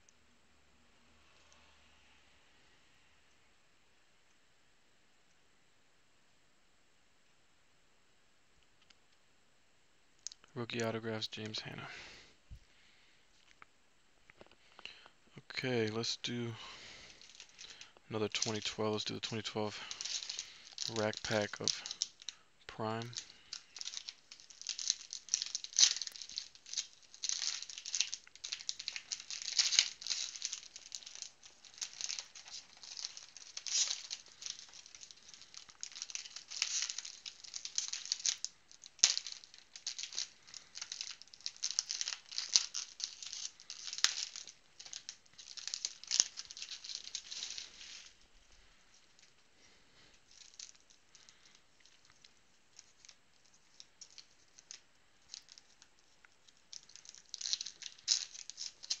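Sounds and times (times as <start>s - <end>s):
plastic wrapper crinkling: 14.3s - 59.0s.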